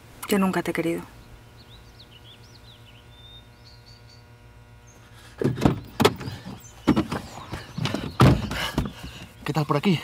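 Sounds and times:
faint bird chirps: 1.2 - 5.2
car door clunks and thumps: 5.4 - 9.3.

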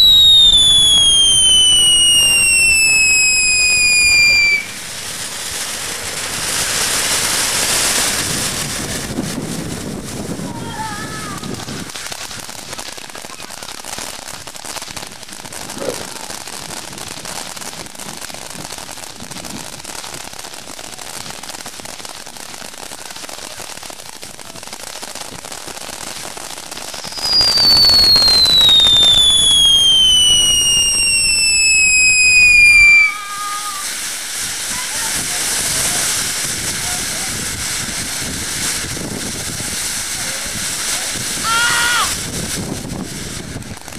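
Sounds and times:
loud falling whistle: 0.0 - 4.7, 27.1 - 33.6
fireworks hissing and crackling: 0.0 - 43.9.

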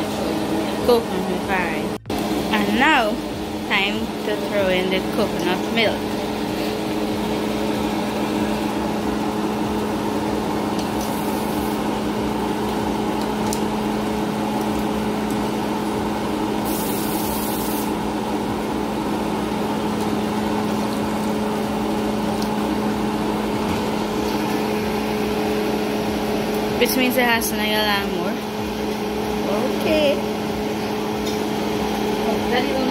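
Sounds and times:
steady background hum: 0.0 - 32.9.

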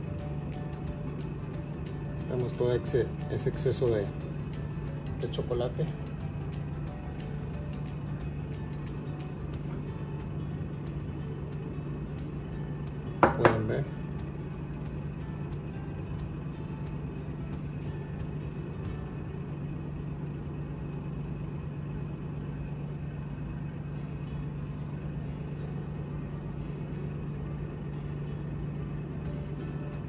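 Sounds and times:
steady low hum: 0.0 - 30.0.

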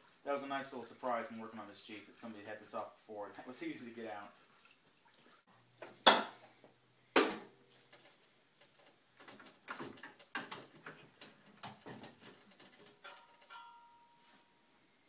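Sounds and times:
metal clatters and rubbing: 7.8 - 14.2.

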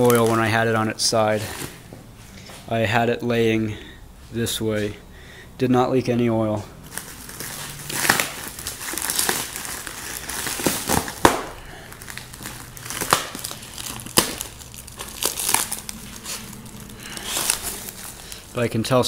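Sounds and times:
plastic shrink wrap crinkling: 0.0 - 1.8, 6.8 - 19.0.

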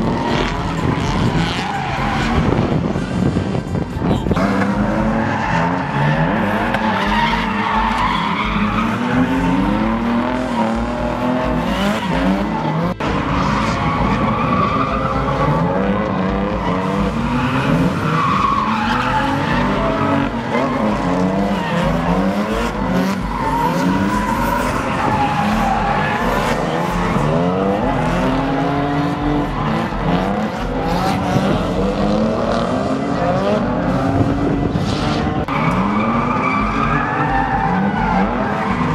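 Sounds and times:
car engines revving: 0.0 - 38.9
tyres screeching: 4.2 - 32.5.

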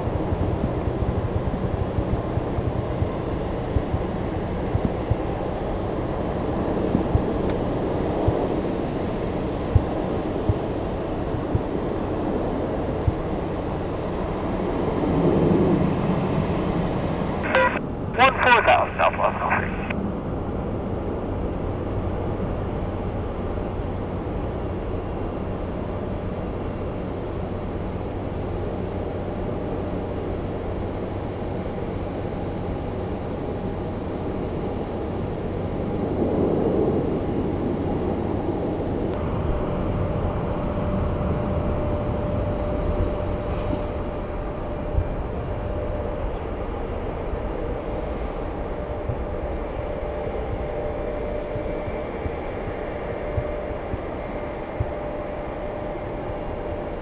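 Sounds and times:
distant jet engines rumbling: 0.0 - 20.8
jet engine whine: 0.0 - 57.0.

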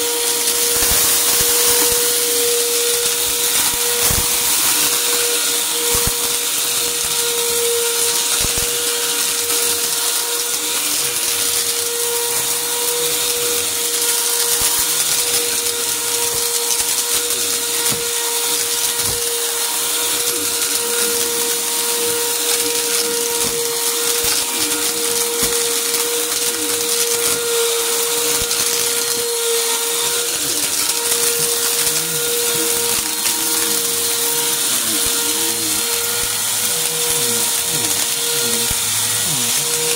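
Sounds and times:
grit crackling through nozzle: 0.0 - 39.9
vacuum cleaner running on carpet: 0.0 - 39.9.

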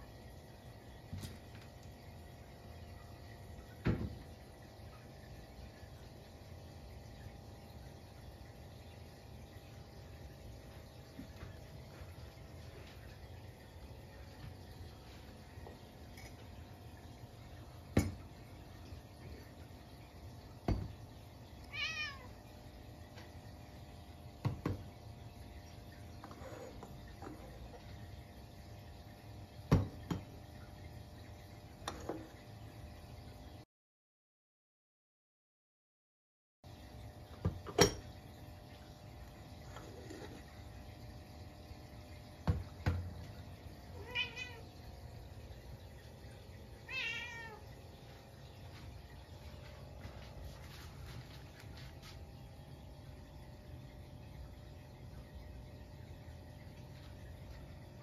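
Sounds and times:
cat meow: 21.7 - 22.4, 43.9 - 44.7, 46.9 - 47.7.

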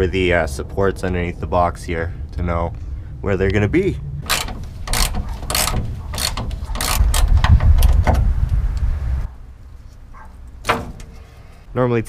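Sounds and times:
low rumbling noise: 0.0 - 11.8
ratchet clicking: 4.2 - 8.1.

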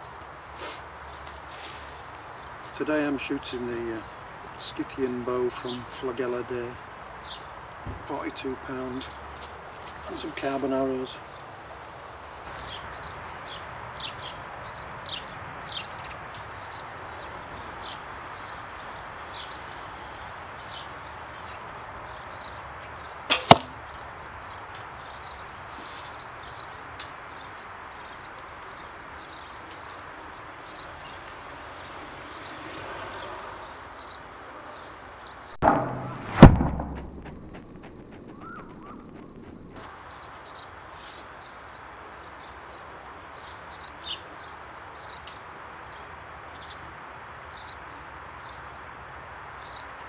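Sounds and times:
deep thud: 35.6 - 39.8
arrow loosed from bow: 35.7 - 39.6
small bird chirping: 37.4 - 40.6.

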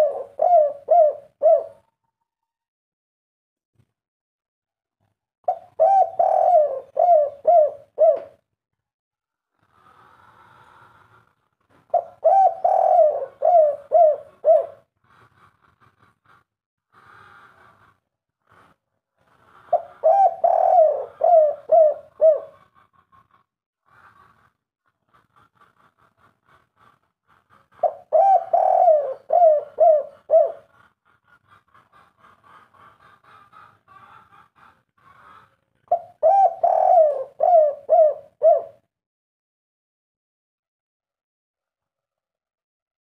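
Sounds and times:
dove cooing: 0.0 - 1.8, 5.5 - 8.4, 11.9 - 14.9, 19.7 - 22.8, 27.8 - 30.7, 35.9 - 38.9.

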